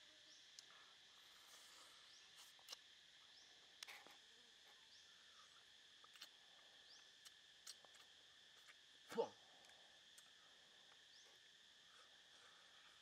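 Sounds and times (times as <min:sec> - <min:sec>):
insects humming: 0:00.0 - 0:13.0
mouth chewing: 0:06.0 - 0:06.4, 0:07.2 - 0:08.8.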